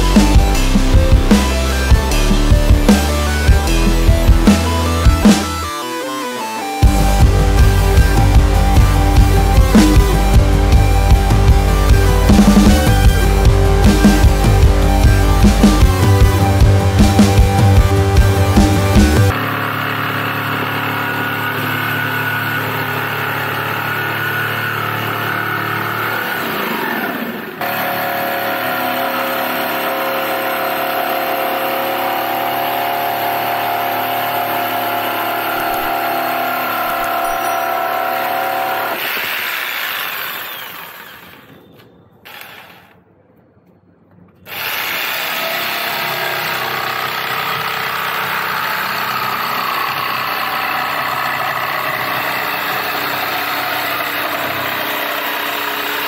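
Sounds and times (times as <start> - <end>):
jigsaw cutting wood: 0.0 - 41.7, 42.3 - 43.0, 44.5 - 56.0.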